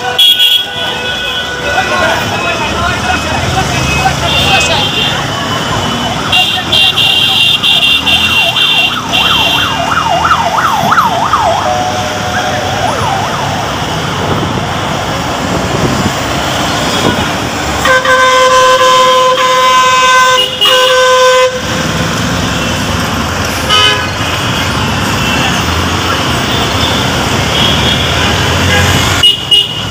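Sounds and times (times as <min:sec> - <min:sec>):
busy road traffic: 0:00.0 - 0:29.9
siren wailing: 0:08.2 - 0:14.1
vehicle horn blast: 0:17.8 - 0:21.6, 0:23.7 - 0:24.2.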